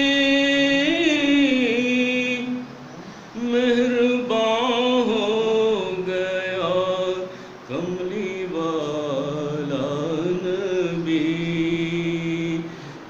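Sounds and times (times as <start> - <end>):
man singing unaccompanied: 0.0 - 13.0.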